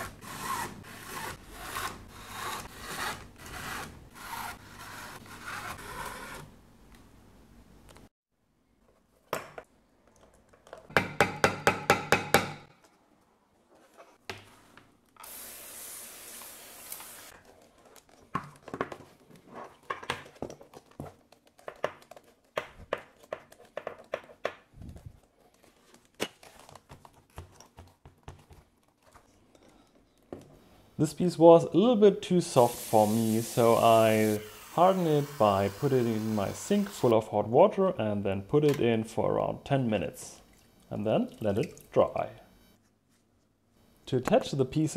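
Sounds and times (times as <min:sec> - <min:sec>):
hiss: 0:15.2 - 0:17.3, 0:32.5 - 0:37.0
leather pieces knocking and rubbing: 0:17.4 - 0:29.2.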